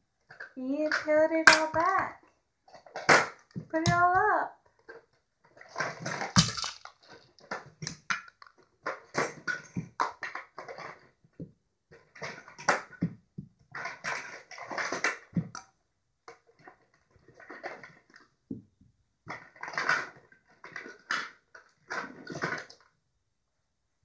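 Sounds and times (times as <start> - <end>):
plastic toys clattering in bucket: 0.2 - 15.7, 16.3 - 18.4, 19.2 - 23.0.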